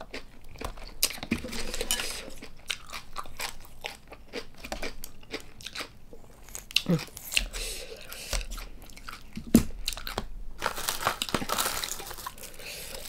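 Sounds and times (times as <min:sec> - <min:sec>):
chewing: 0:00.0 - 0:10.3.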